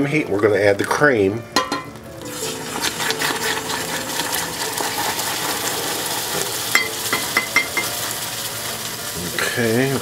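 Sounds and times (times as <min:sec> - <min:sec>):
caramel bubbling and sizzling: 0:01.9 - 0:10.0
spatula stirring and scraping: 0:02.2 - 0:10.0
cream being poured: 0:02.3 - 0:06.7.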